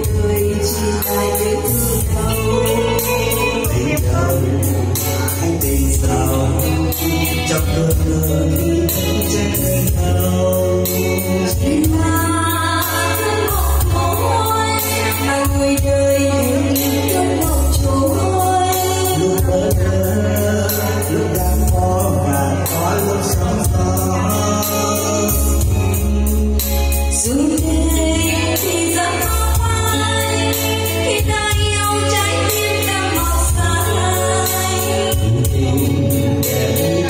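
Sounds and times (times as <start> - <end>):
live band with guitar and keyboard: 0.0 - 37.0
woman and man singing duet: 0.0 - 37.0.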